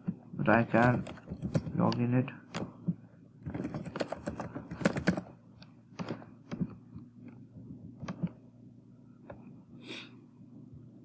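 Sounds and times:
keyboard keystrokes: 0.8 - 2.7, 3.5 - 5.3.

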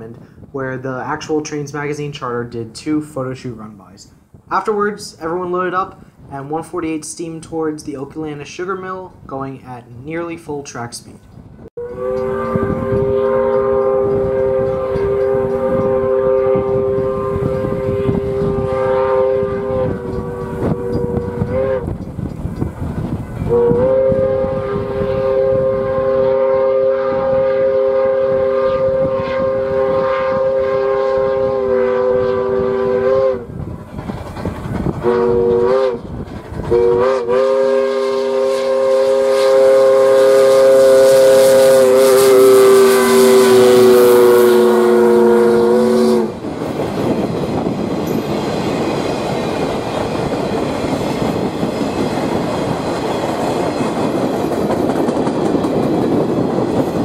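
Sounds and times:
steam locomotive whistle: 11.8 - 22.1, 23.4 - 33.5, 35.0 - 36.1, 36.7 - 46.4
train clatter: 12.1 - 25.1, 33.5 - 37.4, 46.2 - 57.0.

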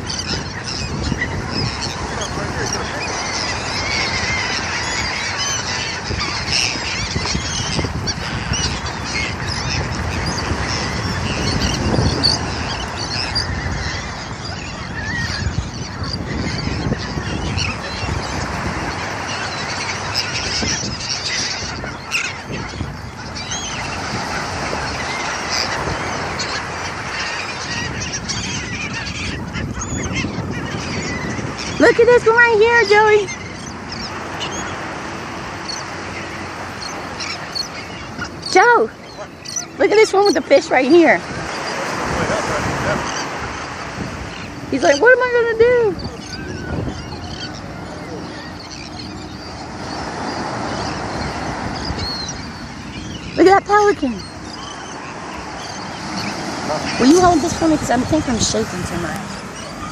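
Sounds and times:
gulls calling: 0.0 - 59.9
surf washing: 0.0 - 59.9.

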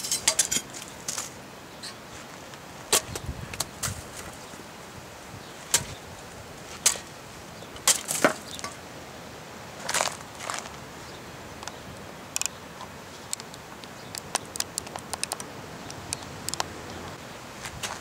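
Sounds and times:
shovel chopping cactus: 2.9 - 4.0, 5.7 - 6.0, 7.8 - 8.8.

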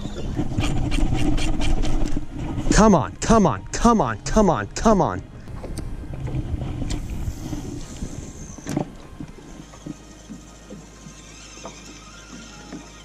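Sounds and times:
wind rumbling on microphone: 0.0 - 9.7
water lapping around boat: 0.0 - 13.0
fishing reel cranking: 9.8 - 13.0.

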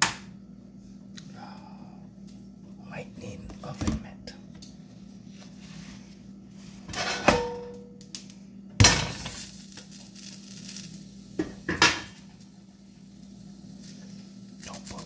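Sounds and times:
low steady hum: 0.0 - 15.0
cookware and utensils clattering: 6.9 - 7.8.

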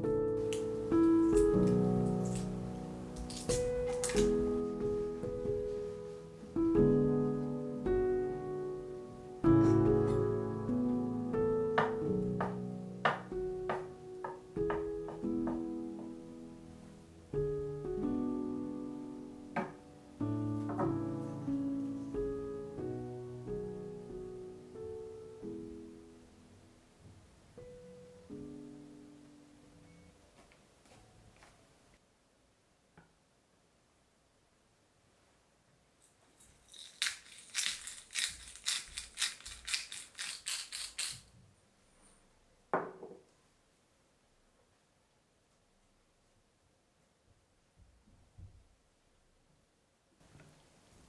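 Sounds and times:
slow piano piece: 0.0 - 32.0
pepper grinder crunching: 3.2 - 4.3, 36.4 - 41.3.

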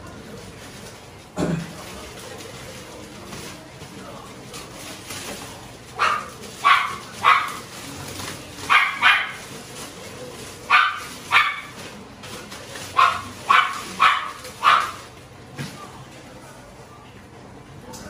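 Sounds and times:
dog barking: 6.0 - 7.8, 8.6 - 9.5, 10.7 - 11.8, 12.9 - 15.1.

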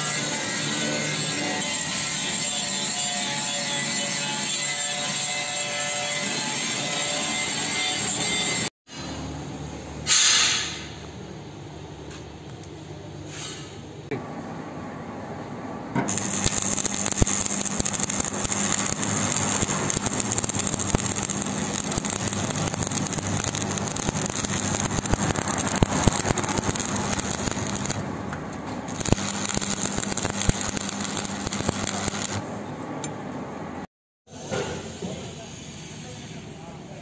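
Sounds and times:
welding arc crackling: 16.1 - 32.5.

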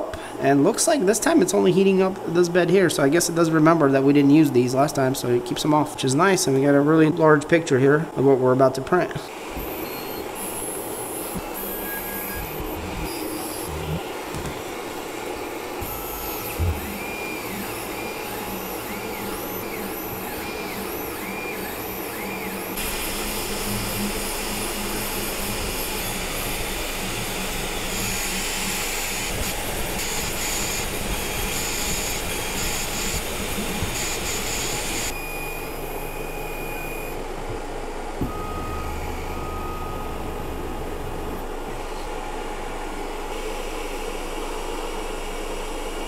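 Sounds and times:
printer motors whining in sweeps: 9.3 - 37.6, 38.2 - 43.5
steady whir: 9.4 - 43.3
high tones: 38.2 - 42.2.

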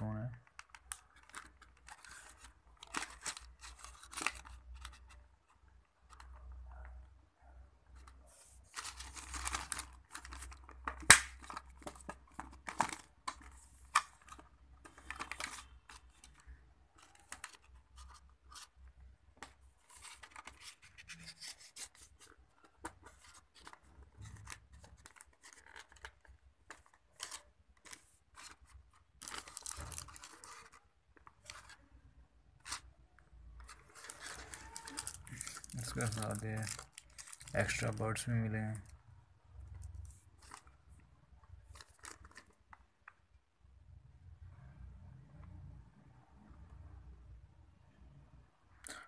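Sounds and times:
plastic packaging crinkling: 0.4 - 5.2, 8.6 - 31.8, 32.6 - 39.0, 41.5 - 42.8.

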